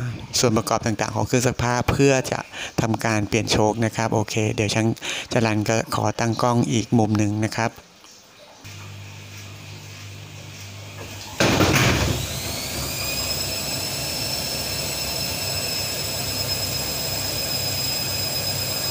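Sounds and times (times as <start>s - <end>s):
water rushing in washing machine: 8.4s - 18.9s
washing machine running: 8.6s - 18.9s
washing machine motor whine: 8.7s - 18.9s.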